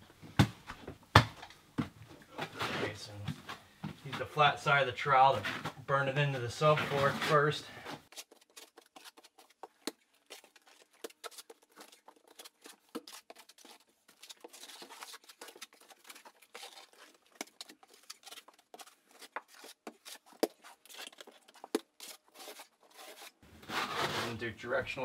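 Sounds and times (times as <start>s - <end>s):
trowel scraping and tapping mortar: 8.0s - 24.4s.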